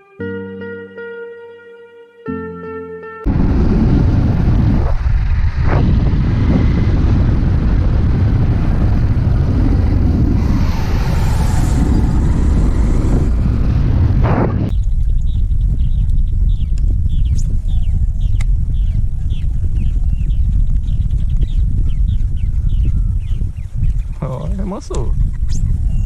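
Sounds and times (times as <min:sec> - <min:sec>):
motorcycle engine rumble: 0:03.3 - 0:24.1
wind on microphone: 0:03.3 - 0:26.0.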